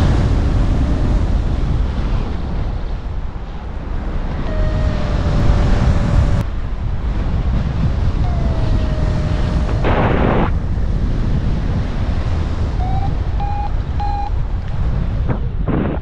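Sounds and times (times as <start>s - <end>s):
wind rushing over microphone: 0.0s - 16.0s
variometer tone sliding down: 4.4s - 6.4s, 12.8s - 14.3s
short variometer beeps: 12.8s - 14.4s.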